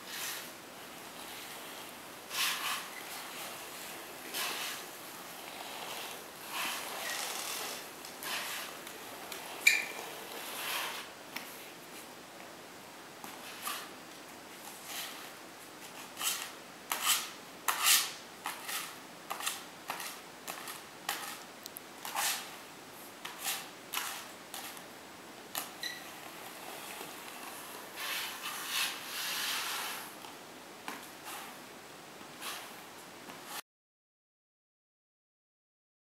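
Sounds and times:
spreader scraping adhesive on concrete: 0.1s - 0.5s, 1.1s - 11.1s, 15.9s - 21.4s, 22.0s - 22.6s, 23.2s - 24.8s, 25.5s - 30.2s, 32.4s - 32.8s.

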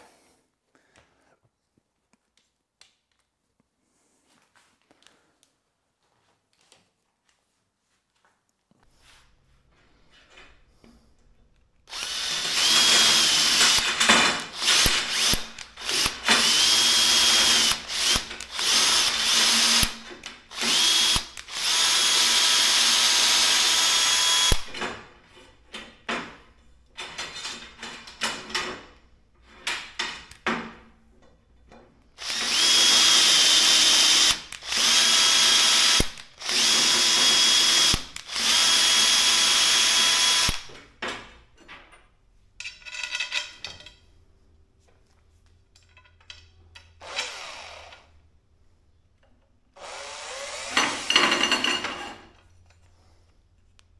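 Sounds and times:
cordless drill whining: 11.9s - 24.8s, 32.2s - 40.7s, 47.0s - 48.1s, 49.8s - 51.2s.

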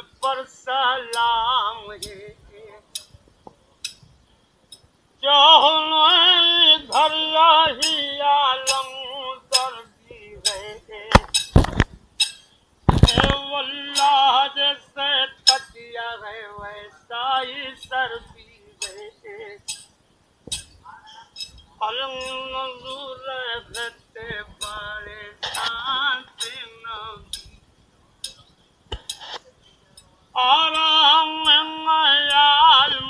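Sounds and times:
old man singing: 0.0s - 3.1s, 5.2s - 11.8s, 12.9s - 19.8s, 21.7s - 27.6s, 29.2s - 33.0s.

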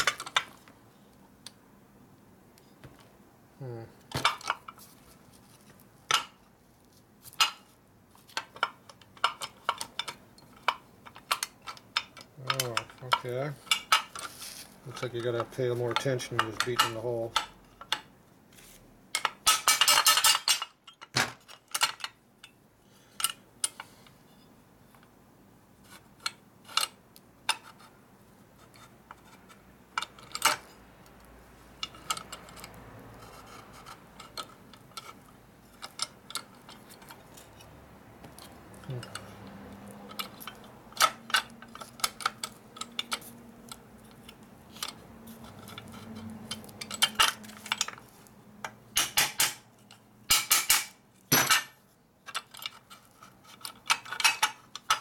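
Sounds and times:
metallic clinks and knocks: 31.8s - 55.0s.

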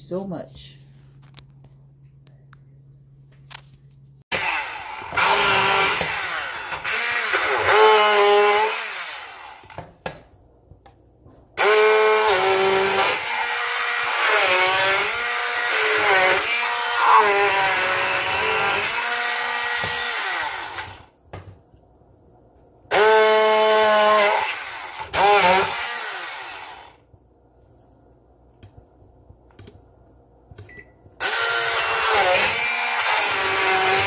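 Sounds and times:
hand blender motor whine: 4.3s - 9.8s, 11.6s - 21.1s, 22.9s - 27.0s, 31.2s - 34.0s.

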